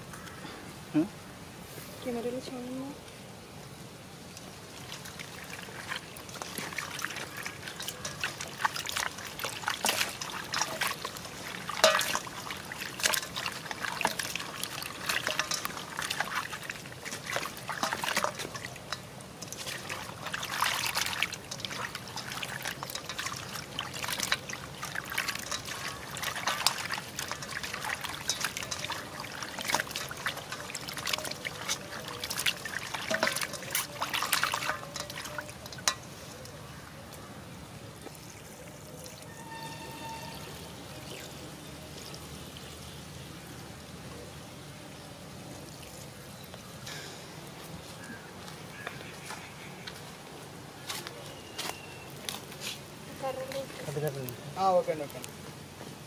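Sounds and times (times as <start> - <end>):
meat squelching in water: 4.7 - 36.7
water sloshing in steel bowl: 4.7 - 36.8.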